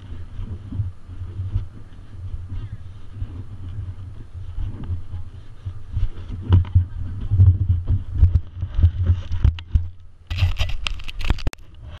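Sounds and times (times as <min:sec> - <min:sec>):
wind buffeting on microphone: 0:00.0 - 0:12.0
camera scraping and knocks: 0:06.0 - 0:11.6.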